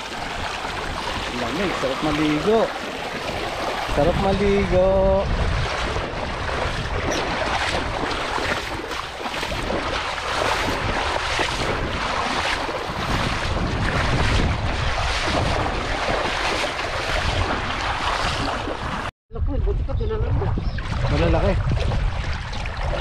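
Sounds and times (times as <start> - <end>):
river water rushing: 0.0 - 4.5, 5.8 - 19.1
wind buffeting microphone: 0.0 - 23.0.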